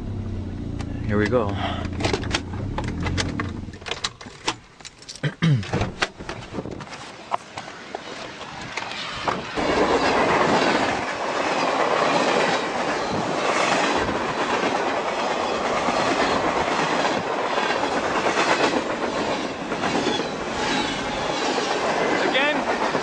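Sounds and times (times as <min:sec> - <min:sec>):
freight train wheels clicking: 0:06.0 - 0:23.0.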